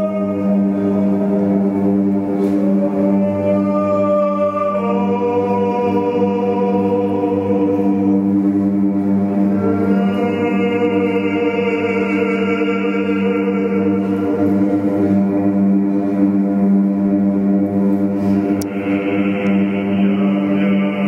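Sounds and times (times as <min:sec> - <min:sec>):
low drone: 0:00.0 - 0:21.0
man chant-like singing: 0:02.6 - 0:08.3, 0:09.6 - 0:14.4, 0:18.6 - 0:21.0.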